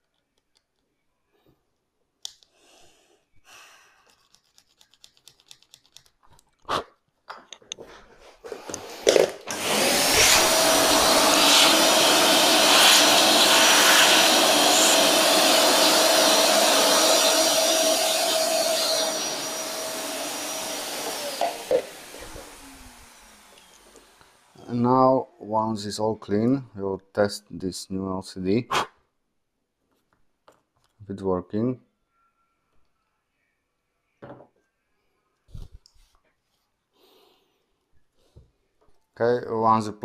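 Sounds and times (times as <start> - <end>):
electric blower whining: 8.7 - 24.8.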